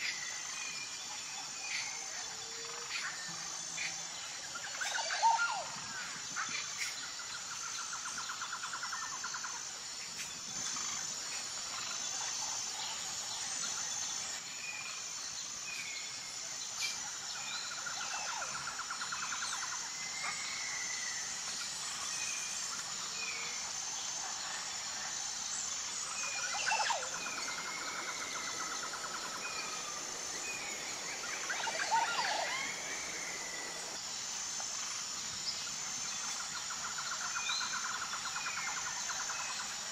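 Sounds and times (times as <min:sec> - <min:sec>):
insects chirring: 0:00.0 - 0:39.9
birds chirping and trilling: 0:25.6 - 0:34.0.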